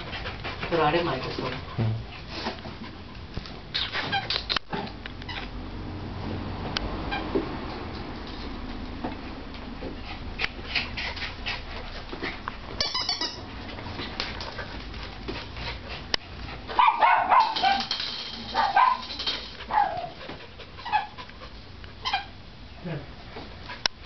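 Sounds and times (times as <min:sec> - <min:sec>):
puppies scuffling and clicking: 0:00.0 - 0:05.5, 0:06.6 - 0:22.0
puppies yipping and whining: 0:12.8 - 0:13.5, 0:19.7 - 0:21.2.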